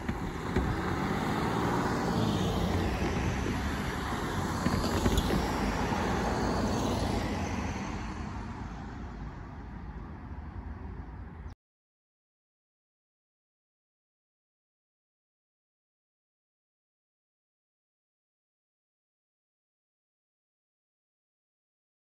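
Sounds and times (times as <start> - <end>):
cars driving past: 0.0 - 11.5.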